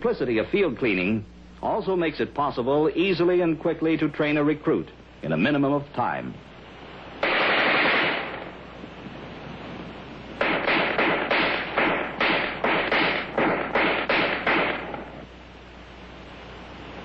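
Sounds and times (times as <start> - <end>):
rifle firing burst: 7.2 - 8.5, 10.4 - 15.2
rifle gunshots: 7.2 - 8.6, 10.4 - 15.2.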